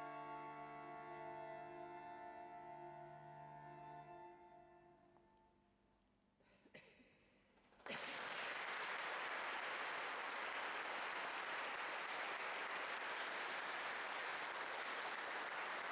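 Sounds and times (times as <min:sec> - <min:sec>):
audience applause: 0:07.8 - 0:15.9.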